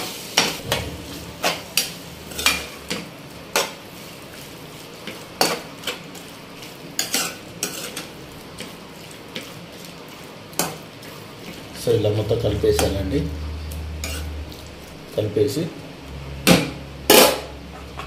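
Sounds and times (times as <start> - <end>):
chicken sizzling in oil: 0.0 - 17.6
metal spatula scraping pan: 0.4 - 9.5, 12.7 - 14.8.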